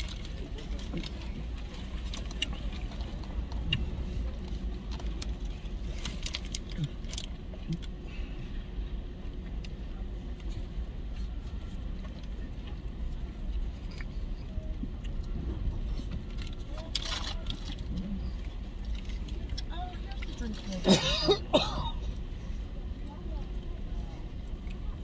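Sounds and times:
clicks and rustles of eating: 0.0 - 8.0, 9.2 - 20.9.

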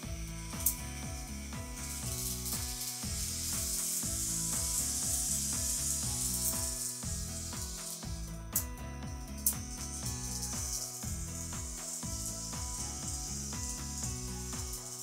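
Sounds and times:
background music: 0.0 - 15.0
model trains hissing on track: 1.8 - 8.0, 11.7 - 15.0.

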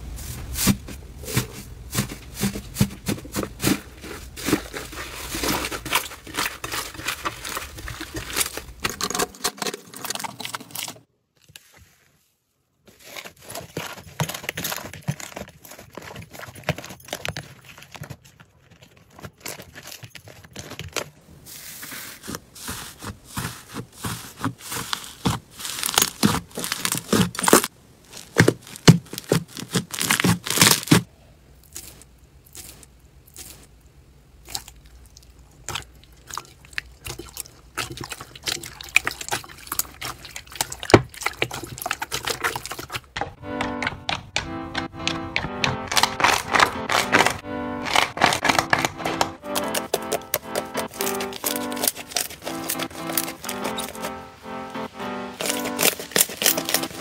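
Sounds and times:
sticky slime crackling and popping: 22.7 - 33.7, 45.6 - 54.2, 55.3 - 57.0.

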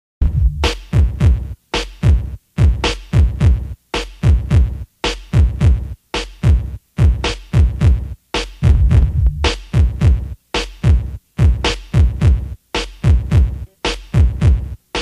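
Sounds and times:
electronic music with drum-machine beat: 0.2 - 15.0.

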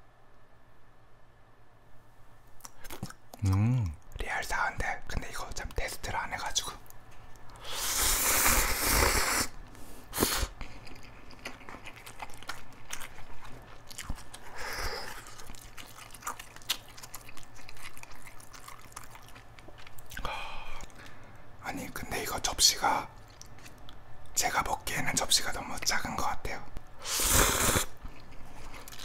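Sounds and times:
wet chewing with mouth clicks: 2.5 - 4.2, 6.6 - 9.5, 10.2 - 21.2, 23.1 - 24.4, 27.2 - 29.0
noodles slurping: 7.5 - 9.6, 27.0 - 29.0.

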